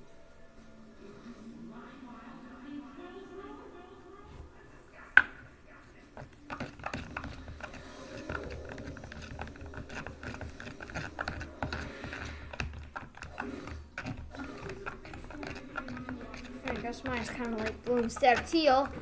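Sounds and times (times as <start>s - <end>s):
plastic stirrer scraping a tub: 6.2s - 19.0s.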